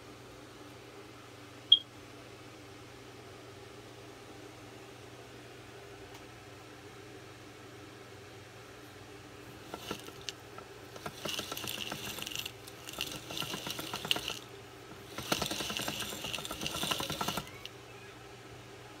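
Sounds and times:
dough roller gears clattering: 0:09.5 - 0:17.7.

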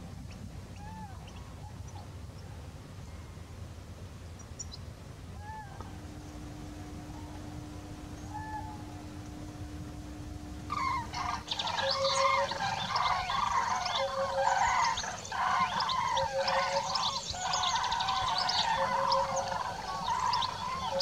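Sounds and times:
faint low rumble: 0:00.0 - 0:21.0
chorus of birds calling: 0:05.4 - 0:21.0.

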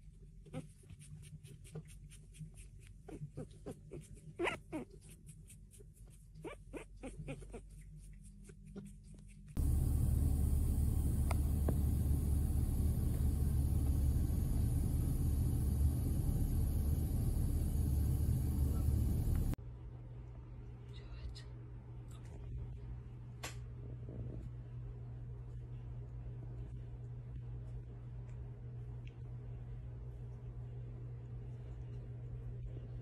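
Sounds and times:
low outdoor rumble: 0:00.0 - 0:33.0
puppies squeaking: 0:03.1 - 0:05.2.

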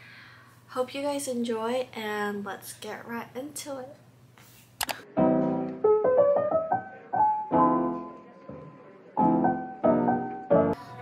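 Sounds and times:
piano music: 0:05.1 - 0:11.0.

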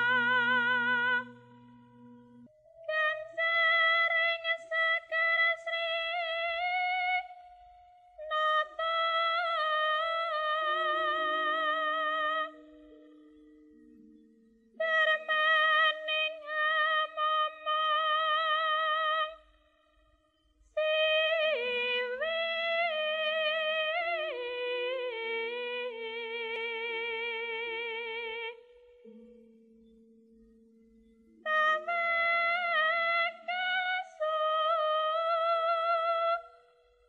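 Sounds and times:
woman singing with vibrato: 0:00.0 - 0:01.9, 0:02.7 - 0:12.7, 0:14.8 - 0:19.5, 0:20.8 - 0:28.7, 0:31.4 - 0:36.6
sustained accompaniment notes: 0:00.0 - 0:19.4.

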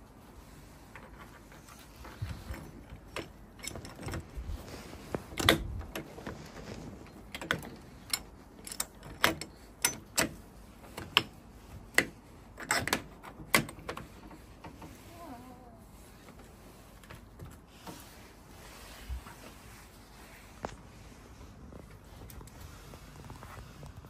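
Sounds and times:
metallic clicks of door hardware: 0:05.4 - 0:06.1, 0:07.3 - 0:14.0.

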